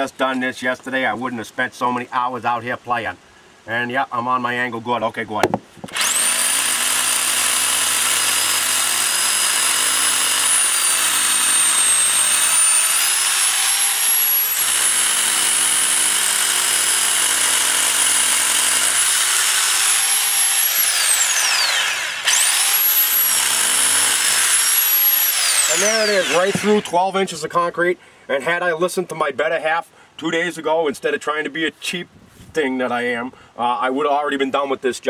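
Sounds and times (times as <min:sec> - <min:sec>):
rotary hammer drill boring concrete: 0:05.9 - 0:27.2.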